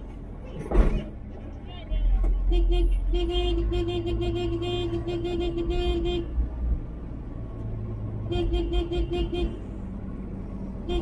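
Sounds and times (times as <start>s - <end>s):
moving vehicle drone: 0.0s - 11.0s
vehicle horn tooting: 2.4s - 6.3s, 8.3s - 9.6s.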